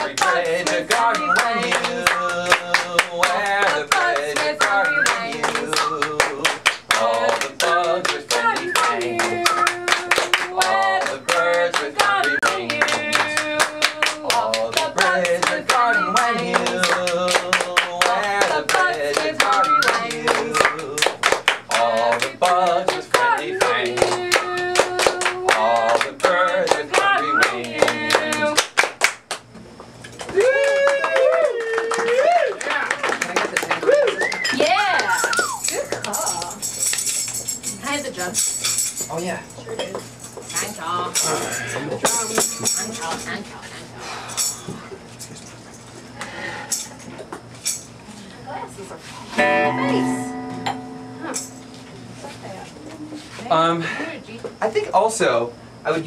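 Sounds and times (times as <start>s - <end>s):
voices singing: 0.0s - 28.8s
rhythmic hand clapping: 0.0s - 29.6s, 30.2s - 39.2s, 39.9s - 43.4s, 49.4s - 52.5s.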